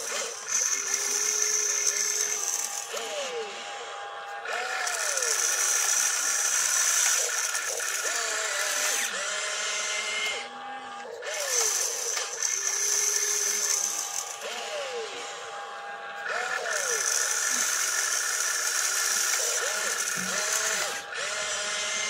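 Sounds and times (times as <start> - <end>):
electric motors whining: 0.0 - 22.0.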